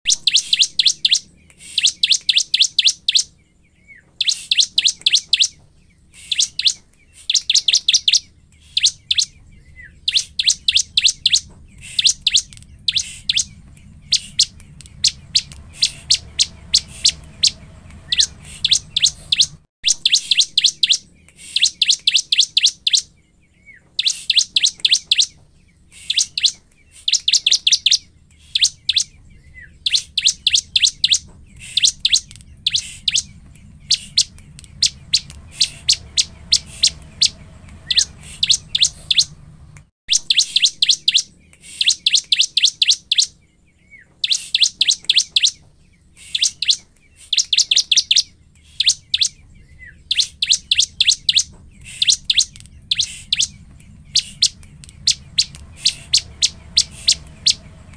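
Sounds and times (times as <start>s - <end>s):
bird singing sharp high chirps: 0.0s - 57.9s.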